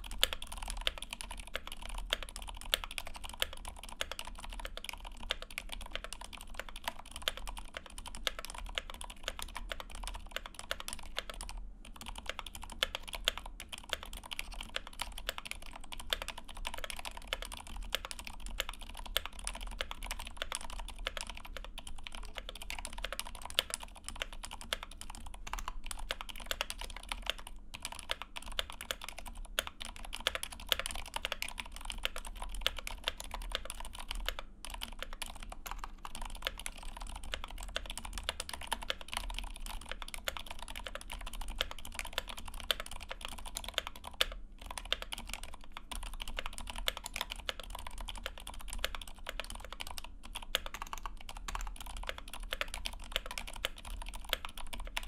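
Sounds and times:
fast typing on mechanical keyboard: 0.0s - 55.0s.

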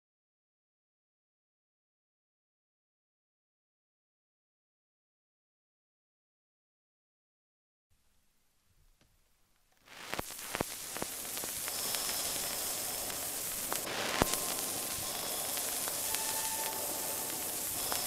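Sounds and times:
crackling hiss: 8.0s - 18.0s
sharp clicks and pops: 9.0s - 18.0s.

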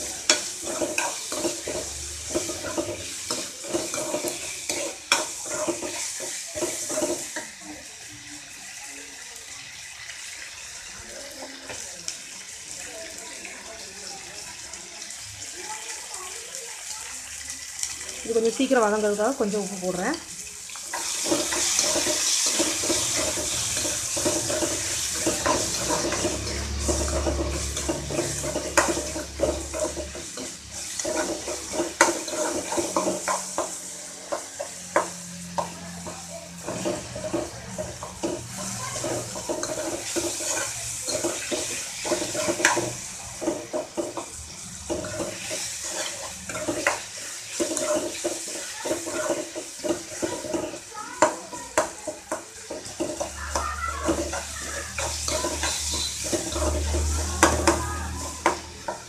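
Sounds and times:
steel spoon scraping a pan: 0.0s - 7.6s, 20.7s - 59.0s
vegetables sizzling in oil: 0.0s - 59.0s.

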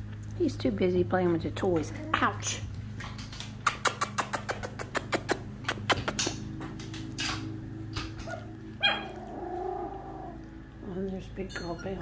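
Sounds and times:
sharp clicks and taps: 3.0s - 8.2s
puppy whimpering: 8.2s - 10.5s.

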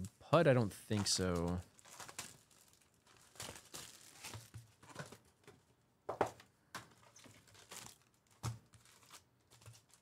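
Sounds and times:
plastic wrap crinkling: 0.9s - 5.3s, 7.0s - 10.0s.

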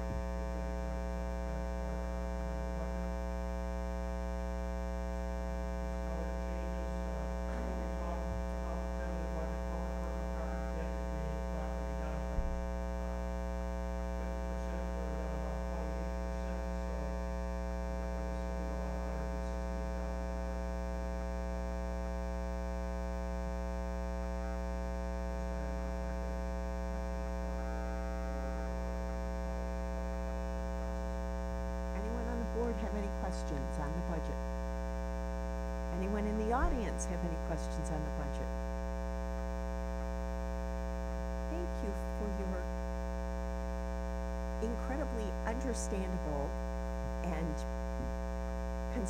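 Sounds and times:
electrical mains hum: 0.0s - 49.0s
faint indistinct speech: 6.1s - 12.6s, 14.1s - 17.3s, 18.1s - 19.7s.

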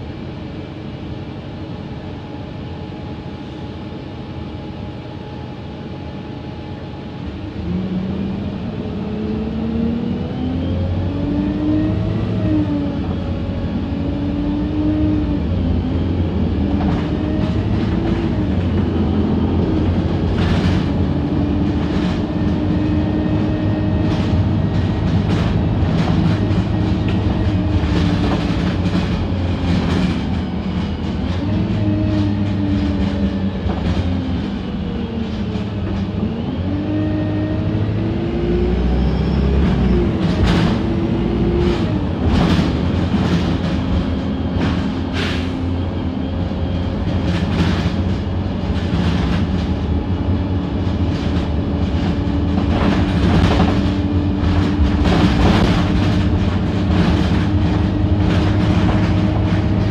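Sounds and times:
bus engine and road rumble: 0.0s - 59.9s
drivetrain whine: 0.0s - 59.9s
knocks and rattles over bumps: 24.0s - 34.2s, 46.9s - 59.9s.

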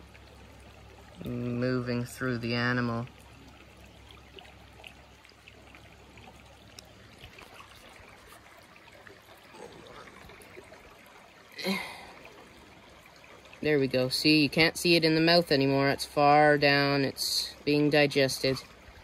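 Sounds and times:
water trickling over rocks: 0.0s - 19.0s
person vocalizing: 11.6s - 12.2s.

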